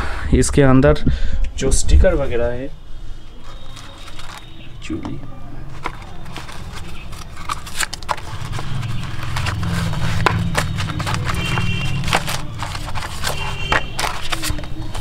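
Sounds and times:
paper rustling: 3.3s - 15.0s.

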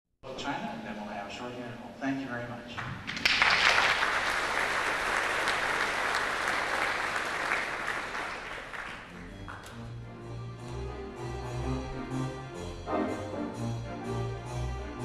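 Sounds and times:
audience applauding: 2.8s - 9.8s
pipe organ sustained low notes: 5.9s - 15.0s.

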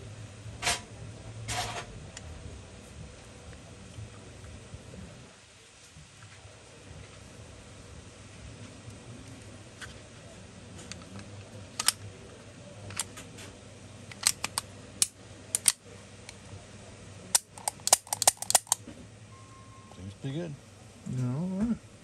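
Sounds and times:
pistol parts clicking: 10.9s - 12.0s, 12.9s - 13.1s, 14.1s - 15.8s, 17.3s - 18.8s.

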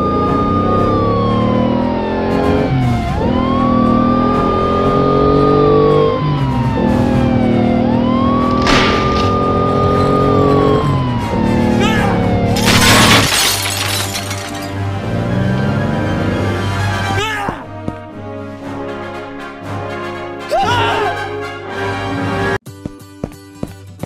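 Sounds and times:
background music: 0.0s - 13.0s, 14.6s - 24.0s
police siren wailing: 0.0s - 17.2s.

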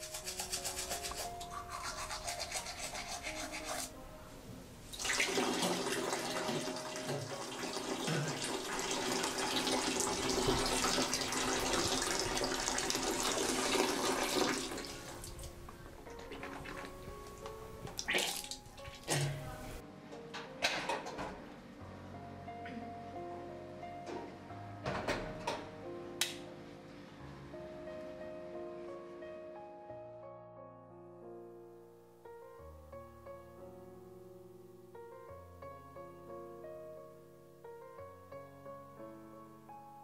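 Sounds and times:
teeth being brushed: 0.0s - 3.9s
soft background music: 0.0s - 40.0s
water running: 4.9s - 17.1s, 17.9s - 19.8s.

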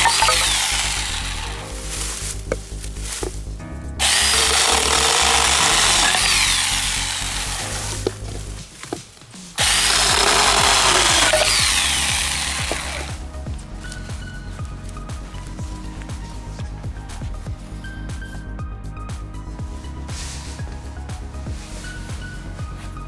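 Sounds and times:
mini chainsaw cutting bamboo: 0.0s - 1.7s, 4.0s - 8.4s, 9.6s - 13.2s
background music with bass line: 0.0s - 23.0s.

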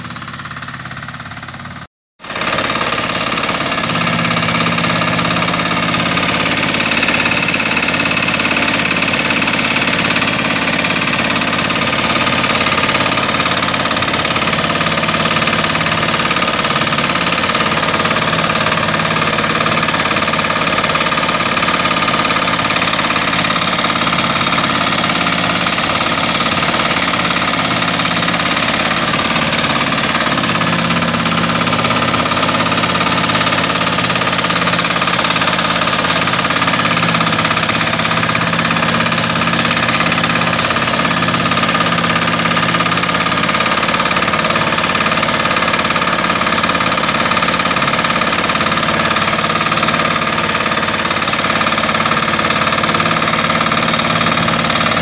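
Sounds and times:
power tiller engine running: 0.0s - 55.0s.

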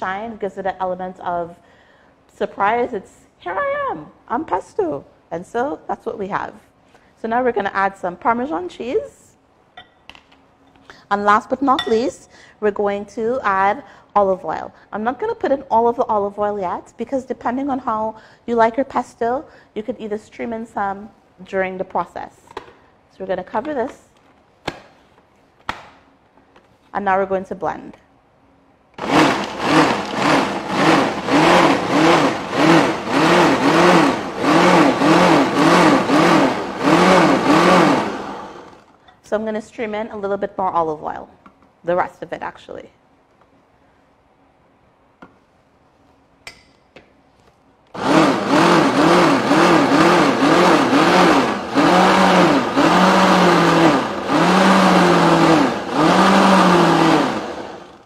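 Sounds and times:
blender motor pulsing: 29.0s - 38.9s, 48.0s - 58.0s
food processor running: 29.0s - 38.9s, 48.0s - 58.0s.

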